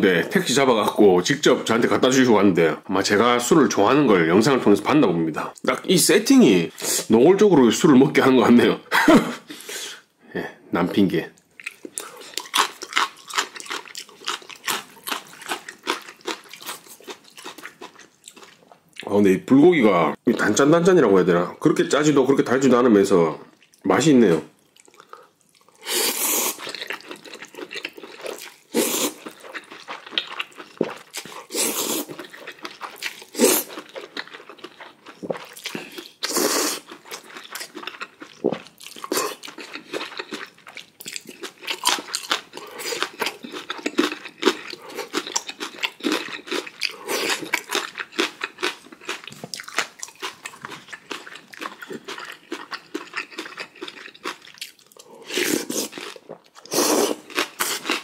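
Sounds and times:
person chewing and crunching: 11.4s - 19.1s, 24.6s - 58.0s.

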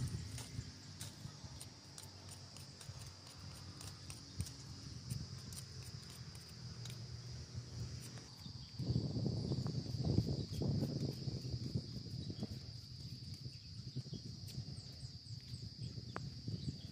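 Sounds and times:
knife scraping a stick: 0.0s - 8.8s
insects droning: 0.0s - 16.9s.

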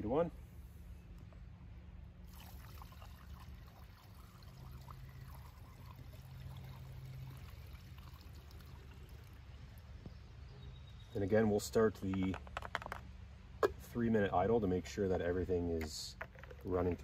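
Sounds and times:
fuel trickling through funnel: 2.2s - 10.2s.

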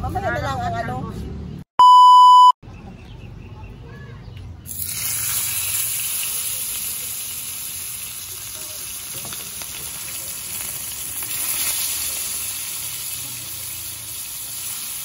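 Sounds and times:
fish sizzling in hot oil: 4.7s - 15.0s.

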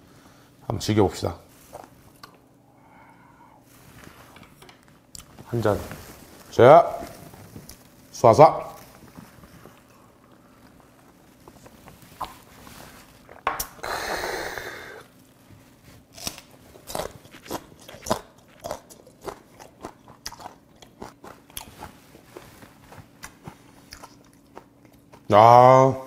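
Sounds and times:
breathy exhale: 2.6s - 3.7s, 13.8s - 15.1s
crunching chili pepper: 16.1s - 22.3s.

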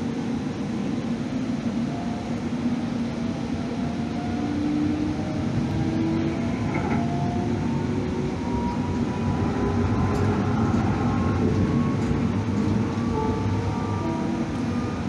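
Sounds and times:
light-rail car rumbling on track: 0.0s - 15.0s
faint whining tones: 1.4s - 15.0s.

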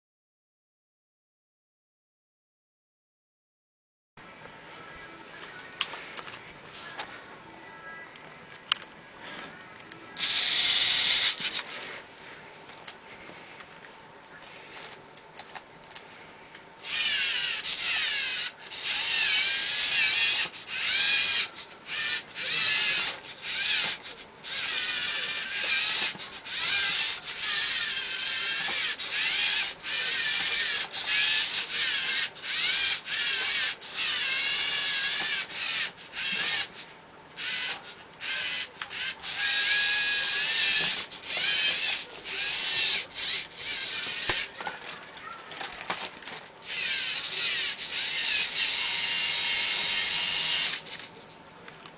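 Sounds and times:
toy motors whining through gears: 10.2s - 12.0s, 14.5s - 16.0s, 16.8s - 51.2s.

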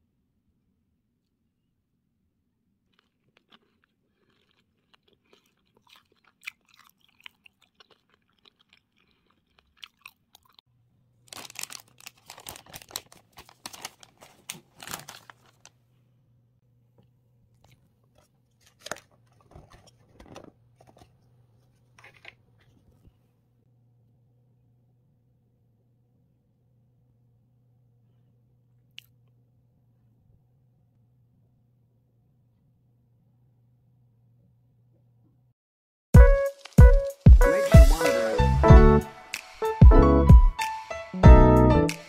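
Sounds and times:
person chewing crunchy food: 2.8s - 10.7s, 11.3s - 15.6s, 17.5s - 21.2s, 36.2s - 38.1s.

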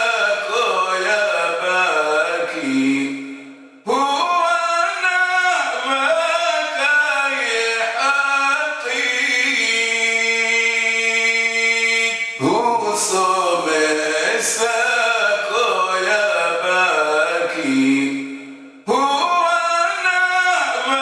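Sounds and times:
man chanting solo: 0.0s - 21.0s.

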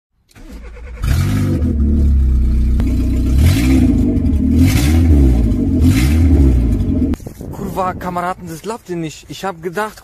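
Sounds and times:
loud car engine revving: 0.8s - 7.2s.

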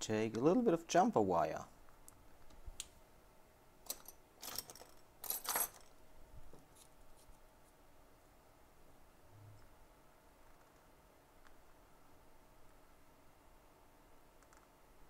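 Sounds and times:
hand tools clinking and rattling: 3.8s - 6.0s.

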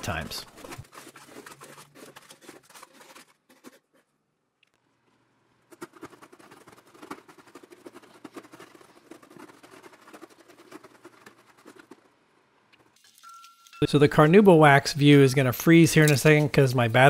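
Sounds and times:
knife sawing through rope: 0.0s - 4.0s, 5.8s - 12.0s.

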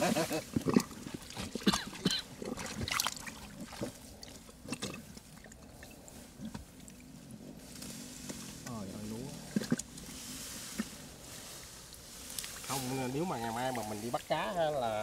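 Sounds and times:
water splashing and dripping: 0.6s - 7.0s.

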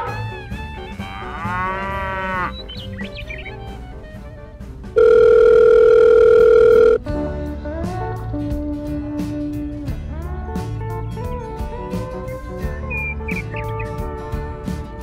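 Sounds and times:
background music: 0.0s - 15.0s
cow mooing: 1.0s - 2.6s
electronic phone tone: 5.0s - 7.0s.

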